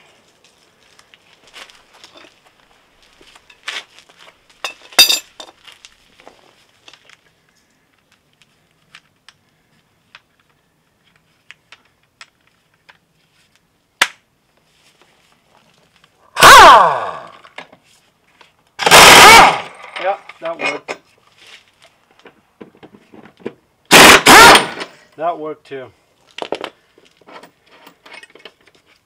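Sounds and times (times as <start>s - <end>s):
metal clinks and clicks: 4.6s - 5.5s
loud ringing metal clink: 5.0s - 5.3s.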